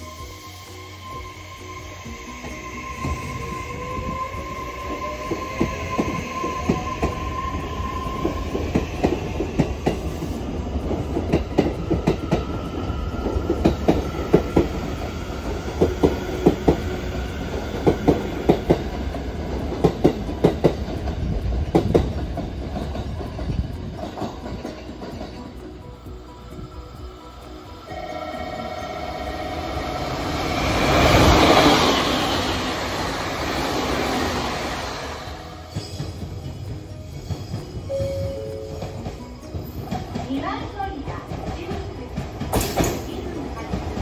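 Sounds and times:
train rumble: 0.0 - 44.0
train wheels clacking on rail joints: 4.9 - 26.2, 35.2 - 44.0
high whine: 26.1 - 35.6.

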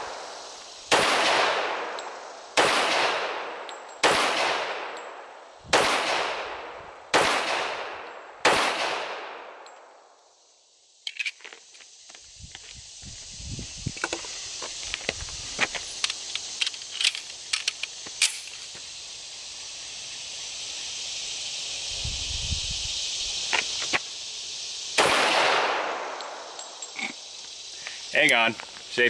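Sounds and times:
high insect hiss: 0.0 - 29.0
loud gunshot ringing out: 0.9 - 1.8, 2.6 - 3.4, 4.0 - 4.9, 5.7 - 9.5, 25.0 - 26.1
metallic pistol clicks: 11.0 - 11.4.

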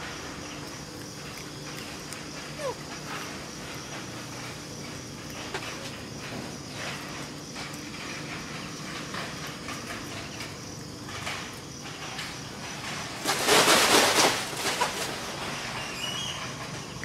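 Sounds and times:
outdoor background hiss: 0.0 - 17.0
loud rustling: 12.8 - 15.7.

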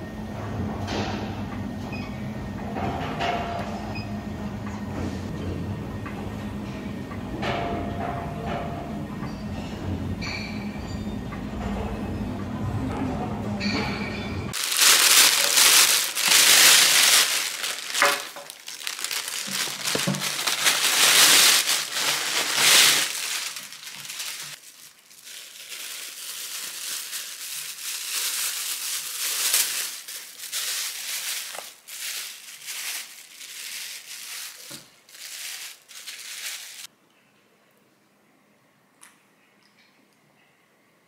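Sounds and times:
plastic bag rustling: 14.5 - 36.9
plastic film crinkling: 14.6 - 36.9.

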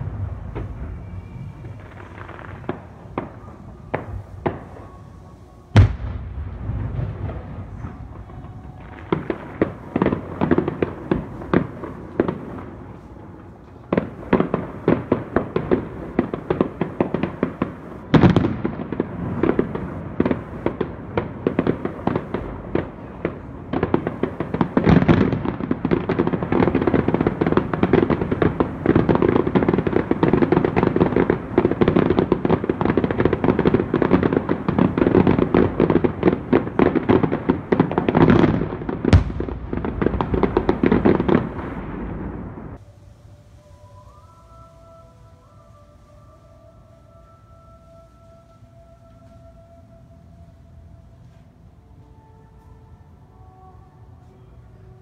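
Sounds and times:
fireworks bangs: 0.0 - 42.8
fireworks crackling: 0.0 - 49.8.

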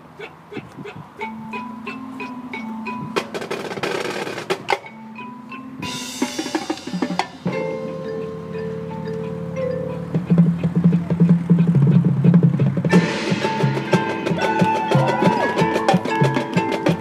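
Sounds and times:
horns holding notes: 0.0 - 17.0
mallet keyboards: 0.0 - 17.0
ticking percussion: 0.0 - 17.0
snare drum rolls: 10.2 - 17.0
cymbal crash: 12.9 - 16.2.

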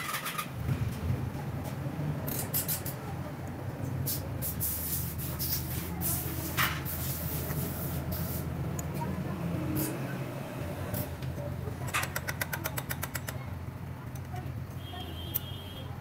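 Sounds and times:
light metallic clicks and taps: 14.0 - 14.4.

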